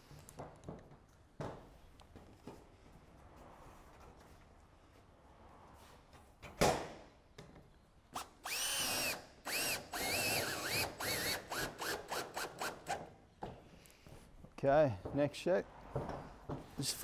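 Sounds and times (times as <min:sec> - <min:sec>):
cordless drill driving screw into steel: 0:08.2 - 0:13.1.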